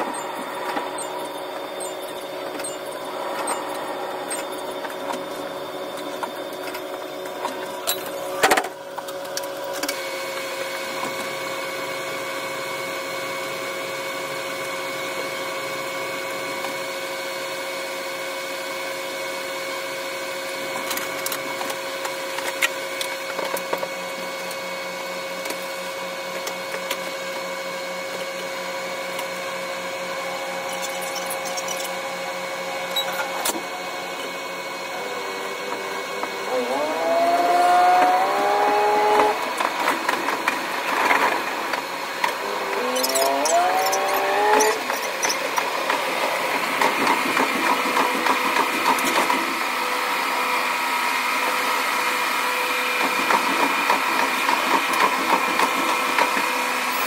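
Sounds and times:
sped-up engine hum: 0.0 - 8.4, 28.0 - 49.1.

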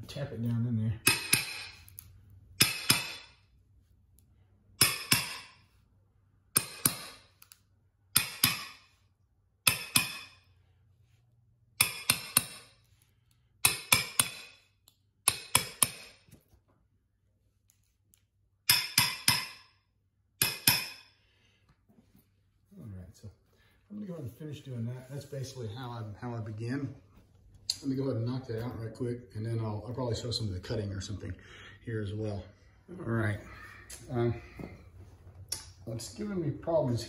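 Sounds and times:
hammer tapping metal: 1.0 - 3.5, 4.8 - 5.7, 6.5 - 9.0, 9.6 - 10.5, 11.7 - 12.9, 13.6 - 16.4, 18.6 - 19.8, 20.4 - 21.2.

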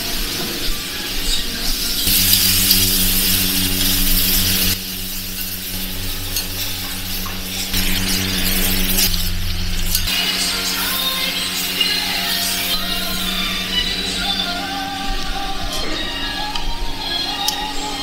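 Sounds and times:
meat sizzling: 0.0 - 13.6
blowtorch hissing: 0.0 - 17.1
low kitchen hum: 0.0 - 18.0.

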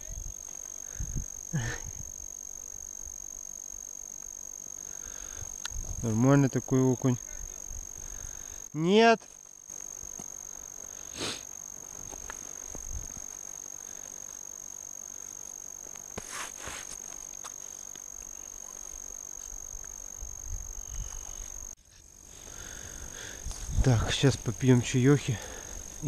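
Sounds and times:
high-pitched electronic whine: 9.7 - 21.8
hiss: 11.0 - 11.5
handling rustles: 15.9 - 18.0.

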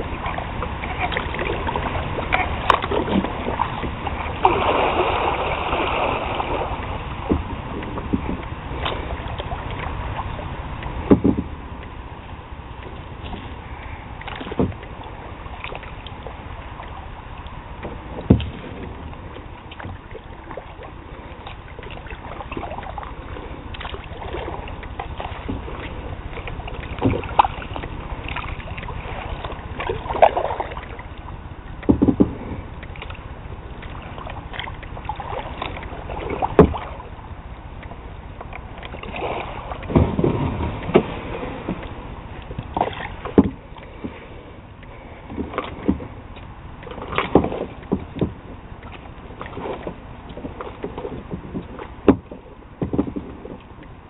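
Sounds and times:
paddle strokes in water: 0.0 - 54.0
sharp knocks: 11.1 - 11.5, 31.8 - 32.4.

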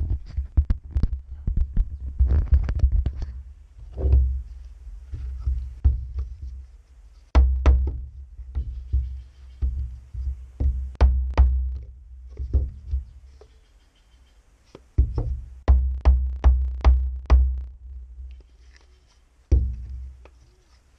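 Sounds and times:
hammer striking wooden block: 15.0 - 17.7.

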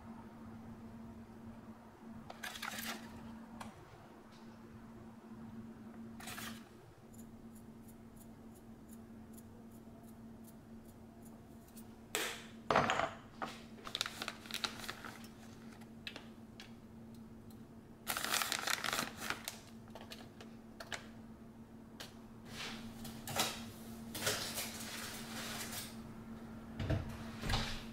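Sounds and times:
steady low hum: 0.0 - 13.8
crackly rustling: 13.8 - 15.9.

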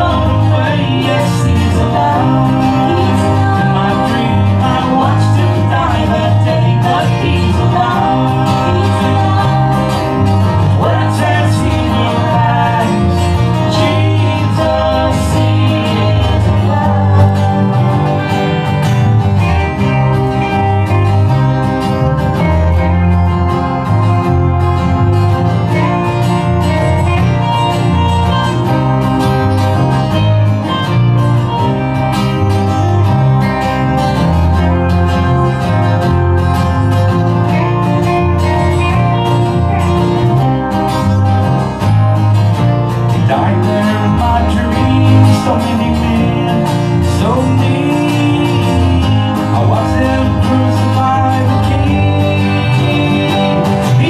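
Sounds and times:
person singing: 0.0 - 18.8, 43.1 - 54.0
acoustic guitar strumming: 0.0 - 54.0
bass line: 0.0 - 54.0
keyboard: 0.0 - 54.0
lead guitar line: 0.0 - 54.0.

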